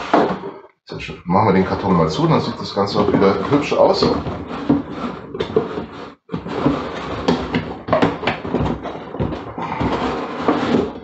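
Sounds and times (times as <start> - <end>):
cardboard flaps scraping and rustling: 2.4 - 11.0.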